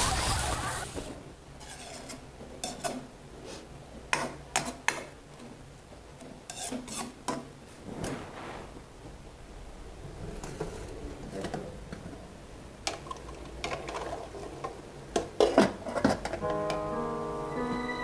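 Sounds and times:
metal spatula scraping a wok: 0:01.6 - 0:03.0, 0:06.5 - 0:07.2.

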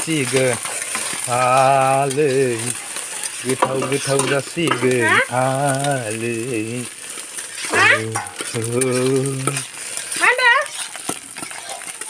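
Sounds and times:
vegetables sizzling in oil: 0:00.0 - 0:12.0
wooden spatula scraping pan: 0:00.2 - 0:01.4, 0:02.7 - 0:05.3, 0:07.1 - 0:12.0
person singing long notes: 0:04.8 - 0:06.9, 0:07.7 - 0:09.6.

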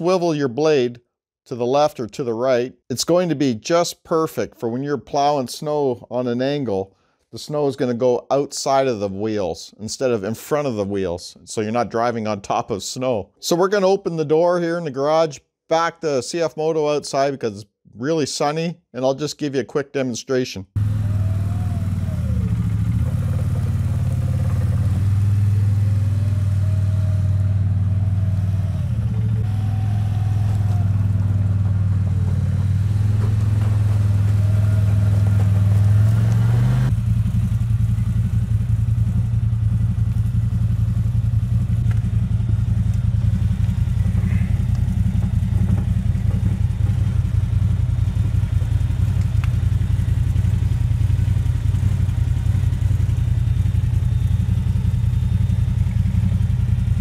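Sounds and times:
vehicle engine running: 0:20.8 - 0:57.0.

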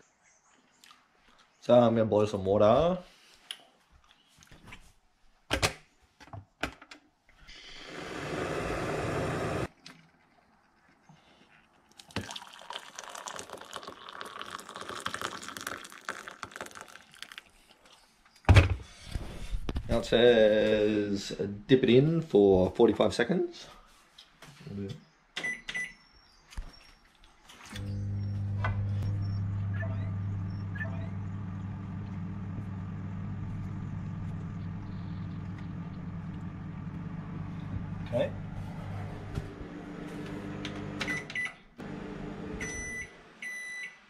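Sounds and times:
water pouring into a mug: 0:11.9 - 0:17.6
low machine hum: 0:27.8 - 0:43.1.

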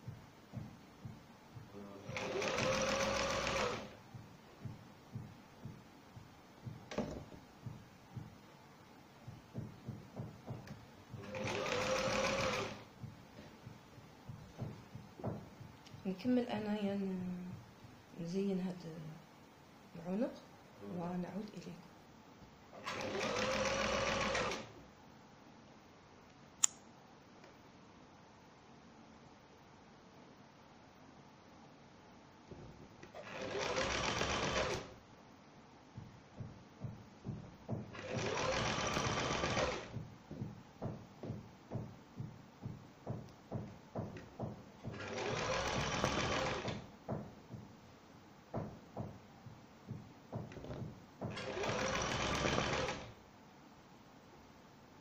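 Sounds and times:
sewing machine stitching: 0:01.8 - 0:04.0, 0:09.5 - 0:13.5, 0:22.8 - 0:24.8, 0:33.0 - 0:35.0, 0:37.8 - 0:40.0, 0:44.4 - 0:46.9, 0:50.4 - 0:53.2
sharp click: 0:26.6 - 0:26.8.

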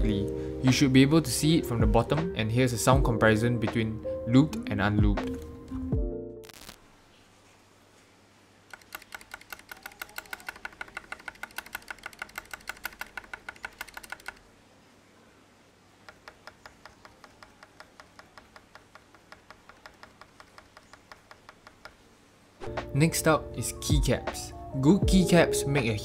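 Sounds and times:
mechanical keyboard key clacking: 0:08.7 - 0:14.4.

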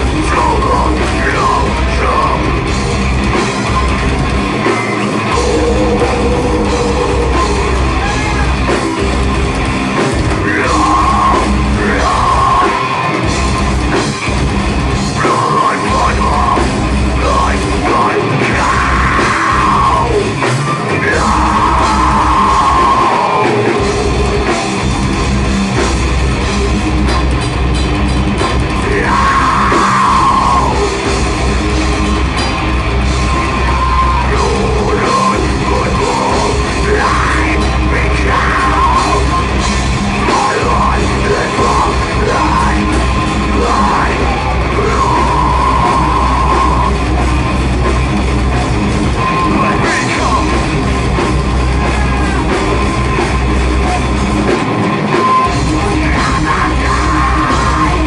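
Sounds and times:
heavy metal band playing: 0:00.0 - 0:58.0
person singing into a microphone: 0:00.1 - 0:02.6, 0:05.3 - 0:08.6, 0:10.3 - 0:12.9, 0:15.2 - 0:24.6, 0:28.8 - 0:31.1, 0:33.4 - 0:47.0, 0:49.2 - 0:50.7, 0:55.3 - 0:58.0.

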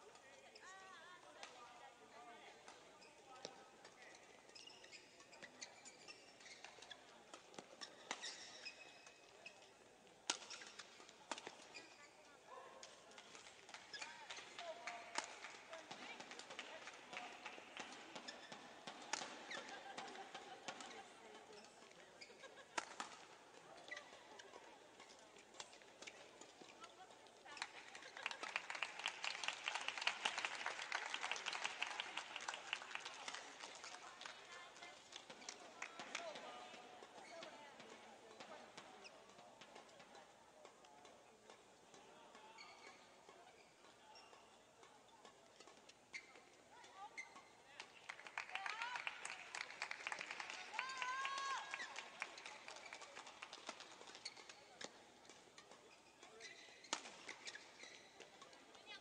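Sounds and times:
shoes squeaking on court floor: 0:00.0 - 0:01.6, 0:02.6 - 0:59.0
racket hitting shuttlecock: 0:12.8 - 0:21.0, 0:52.8 - 0:58.5
spectators applauding: 0:28.0 - 0:33.8, 0:48.0 - 0:53.6.

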